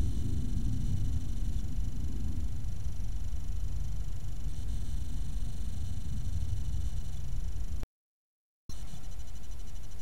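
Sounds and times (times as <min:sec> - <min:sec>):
low rumble and hiss: 0:00.0 - 0:07.8
faint high steady tones: 0:08.7 - 0:10.0.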